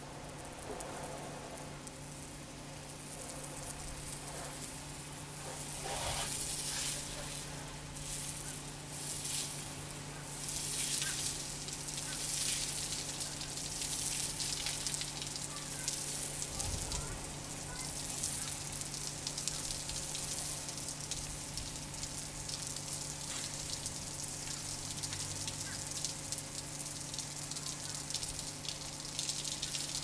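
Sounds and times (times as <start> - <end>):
spray wand hissing: 5.4 - 7.3.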